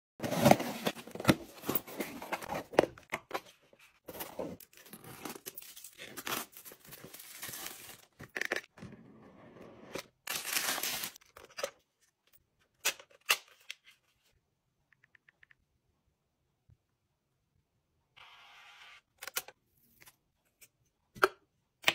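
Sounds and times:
packaging rustling and crinkling: 10.3 - 11.2.

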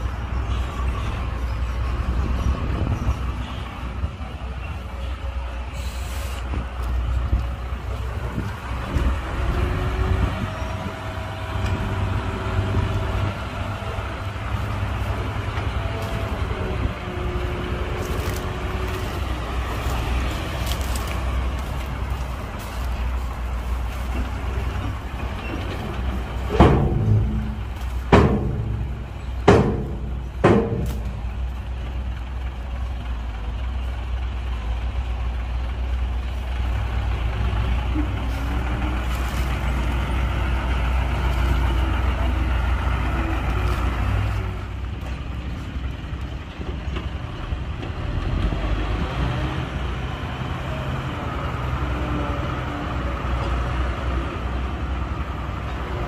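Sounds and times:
diesel truck engine running: 0.0 - 56.0
loud bangs: 26.4 - 31.5.

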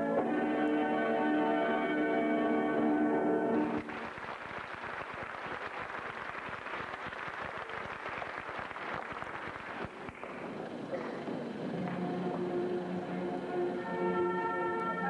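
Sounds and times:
audience applauding: 3.8 - 13.7.

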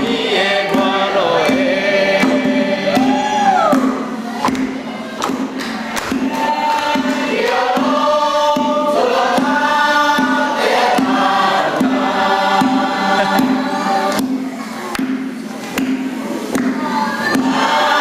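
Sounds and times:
group singing in unison: 0.0 - 18.0
low rhythmic pulse: 0.0 - 18.0.

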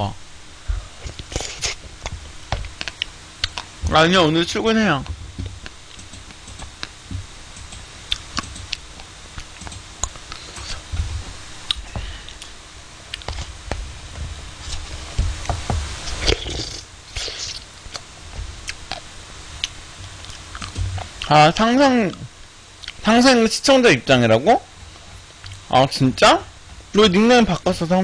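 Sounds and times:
soft chewing: 1.0 - 3.7, 7.7 - 10.8, 11.7 - 13.6, 16.0 - 21.3, 22.1 - 23.0.

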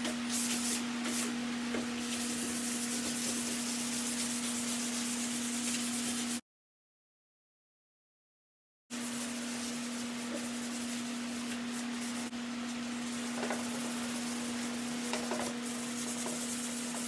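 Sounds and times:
sandpaper rubbing wood: 2.0 - 6.4, 9.0 - 12.3, 13.0 - 17.0.

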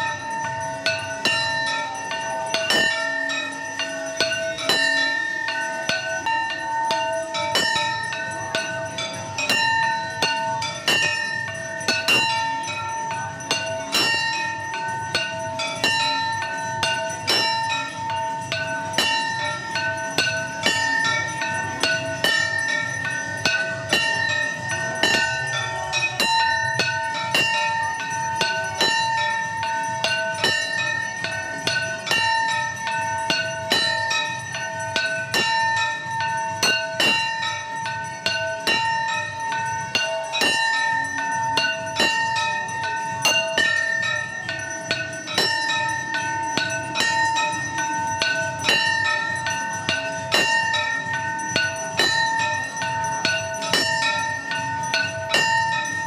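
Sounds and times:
temple bells ringing: 0.0 - 56.0.

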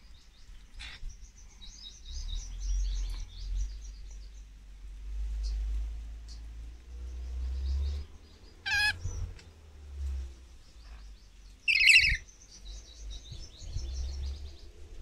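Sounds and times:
low rumble: 2.0 - 15.0
lorikeets screeching: 8.6 - 9.2, 10.8 - 12.6
bird chattering notes: 11.7 - 12.2.

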